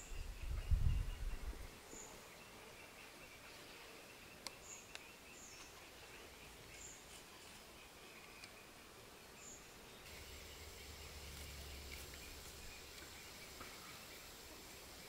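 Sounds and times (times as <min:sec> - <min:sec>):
insect drone: 0:09.4 - 0:15.0.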